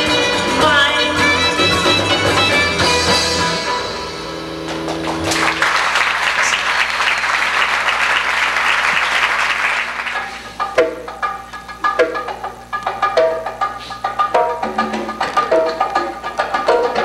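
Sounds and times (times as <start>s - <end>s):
acoustic band held notes: 0.0s - 17.0s
audience applauding: 4.7s - 10.4s
sharp percussive notes: 9.7s - 17.0s.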